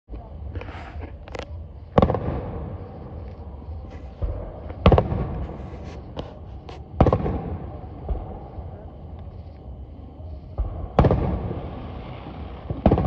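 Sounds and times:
firework booms: 0:01.9 - 0:09.4, 0:10.4 - 0:13.0
firework cracks: 0:10.9 - 0:13.0.

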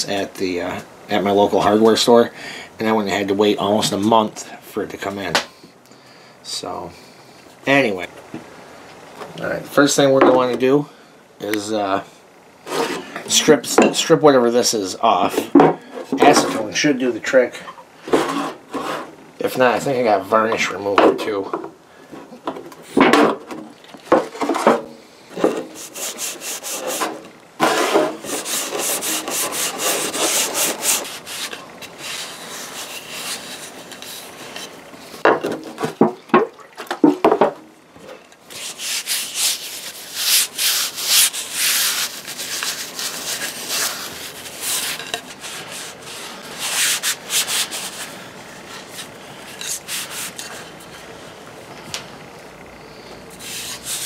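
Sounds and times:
rag rubbing wooden handle: 0:12.6 - 0:13.5, 0:17.6 - 0:19.2, 0:25.4 - 0:35.9, 0:38.5 - 0:51.1, 0:53.3 - 0:54.0
handling knocks and bumps: 0:35.2 - 0:37.7.

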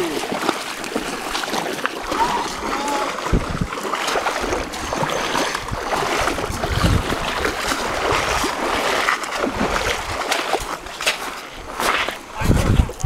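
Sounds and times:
wind buffeting microphone: 0:02.0 - 0:10.9, 0:11.6 - 0:13.0
footsteps on gravel: 0:04.2 - 0:13.0.

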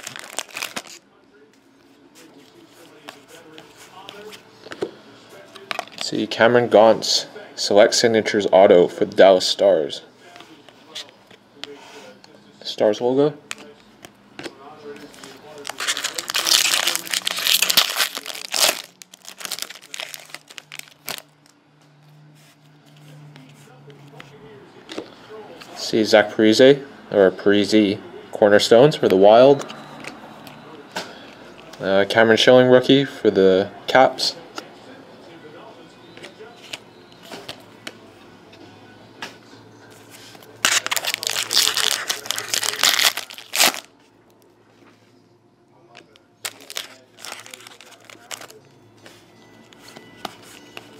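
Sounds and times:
foil wrapper crinkling and tearing: 0:00.0 - 0:01.0, 0:15.5 - 0:21.3, 0:40.6 - 0:43.9, 0:46.4 - 0:48.6
cards clicking and rustling: 0:13.5 - 0:21.4, 0:40.2 - 0:43.9, 0:46.4 - 0:48.6.

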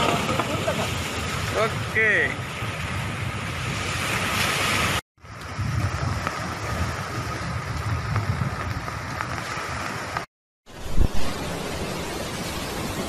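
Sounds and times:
rough surf rushing: 0:00.0 - 0:13.0
strong wind buffeting microphone: 0:05.2 - 0:13.0.

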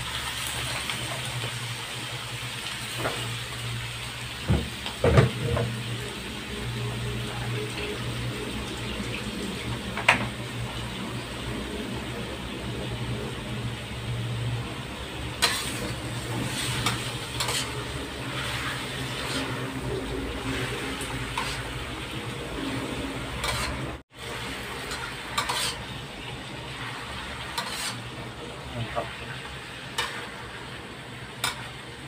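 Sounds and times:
food sizzling in hot oil: 0:00.0 - 0:32.0
metal spatula scraping a wok: 0:15.4 - 0:21.8, 0:23.3 - 0:25.9, 0:26.7 - 0:28.3, 0:29.9 - 0:30.6, 0:31.4 - 0:31.8.

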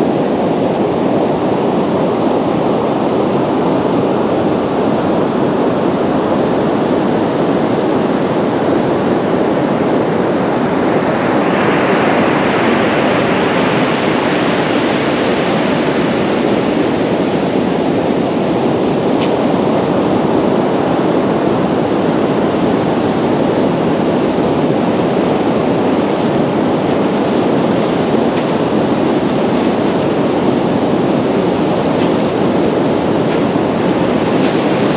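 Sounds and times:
wind on microphone: 0:00.0 - 0:34.9
surf breaking on beach: 0:11.2 - 0:34.9.

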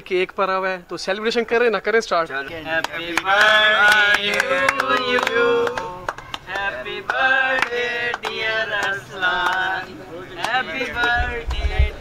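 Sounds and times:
men singing: 0:02.5 - 0:12.0
hand claps: 0:02.8 - 0:09.7, 0:10.4 - 0:11.6.

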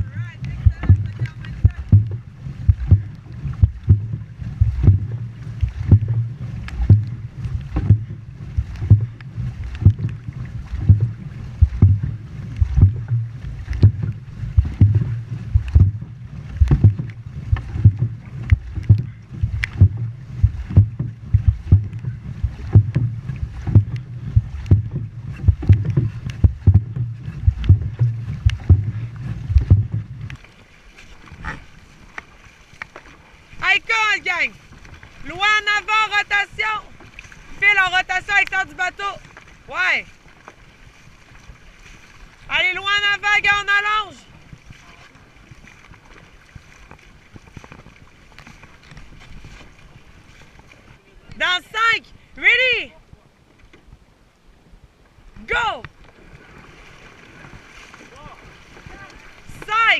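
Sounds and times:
steady low rumble: 0:00.0 - 0:30.5
paddle strokes knocking on hull: 0:00.0 - 0:51.5, 0:55.5 - 0:59.9.

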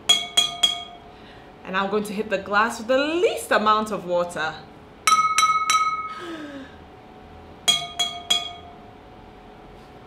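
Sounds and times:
spoon tapping water glass: 0:00.0 - 0:01.0, 0:05.1 - 0:06.2, 0:07.7 - 0:08.8.

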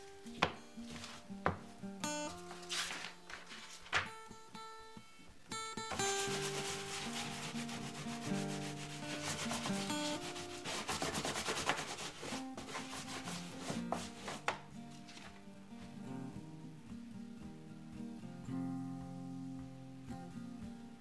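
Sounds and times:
quiet acoustic guitar music: 0:00.0 - 0:21.0
paper rubbed by hand: 0:02.5 - 0:04.0, 0:05.9 - 0:14.5.

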